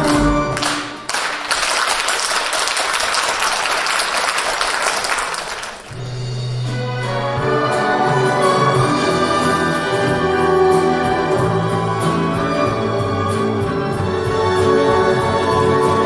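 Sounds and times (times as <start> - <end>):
audience applauding: 0.0 - 6.1
orchestral introduction: 0.0 - 16.0.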